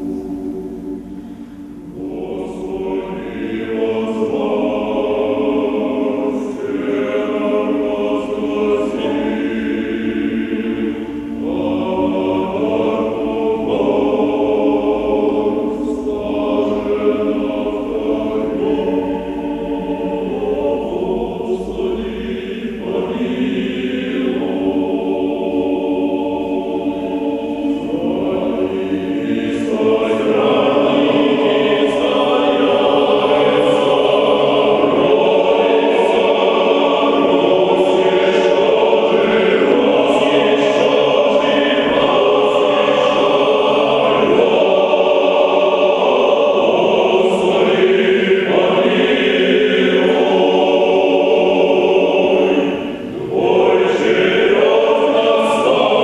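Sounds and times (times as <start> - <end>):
men's choir singing unaccompanied: 0.0 - 56.0.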